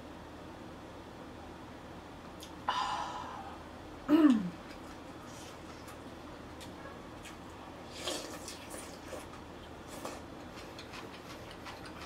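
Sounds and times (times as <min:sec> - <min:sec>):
wet chewing clicks and smacks: 0:04.6 - 0:12.0.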